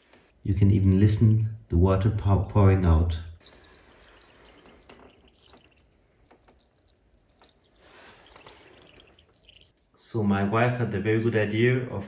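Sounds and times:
water trickling and dripping: 3.4 - 10.0.

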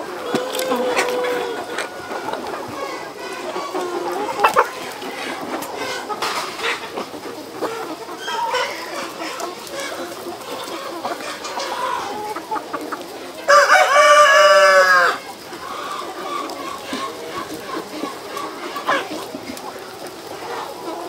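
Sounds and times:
chickens clucking: 0.0 - 21.0
rooster crowing: 13.5 - 15.2.

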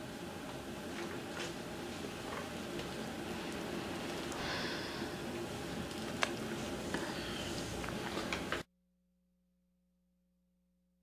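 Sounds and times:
faint steady hum: 0.0 - 8.7
room noise: 0.0 - 8.7.

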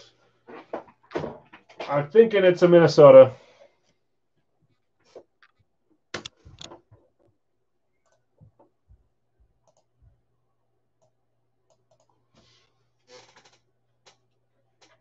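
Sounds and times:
faint low hum: 6.4 - 15.0.

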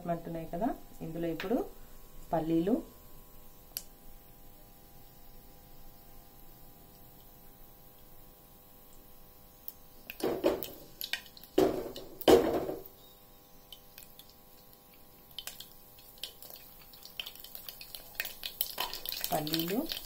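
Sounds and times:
mustard seeds crackling in oil: 8.8 - 20.0
peanuts rattling into oil: 13.7 - 20.0.

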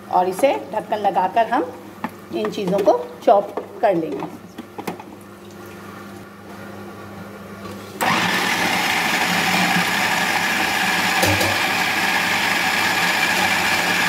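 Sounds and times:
electric food chopper motor: 8.0 - 14.0.

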